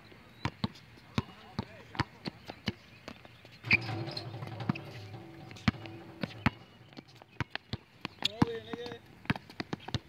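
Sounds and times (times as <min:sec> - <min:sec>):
ball bouncing on asphalt: 0:00.4 - 0:10.0
rim ringing: 0:03.6 - 0:07.4
basketball clanging on metal rim: 0:03.6 - 0:07.5.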